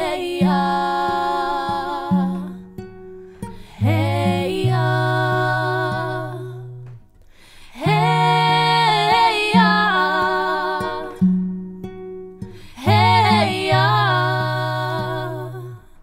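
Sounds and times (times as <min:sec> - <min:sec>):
women singing wordless harmony: 0:00.0 - 0:11.6, 0:12.5 - 0:16.0.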